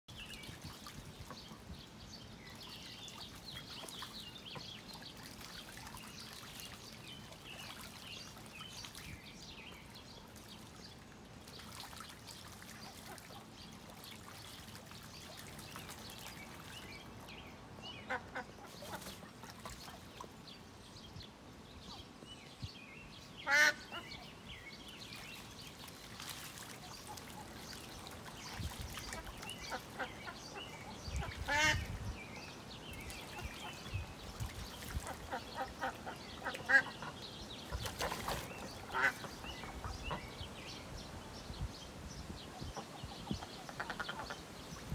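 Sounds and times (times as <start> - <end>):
ducks splashing in water: 0.1 - 20.6, 23.4 - 40.7, 42.7 - 44.9
duck calls: 23.5 - 24.0
loud duck quack: 23.5 - 24.1, 31.2 - 31.8.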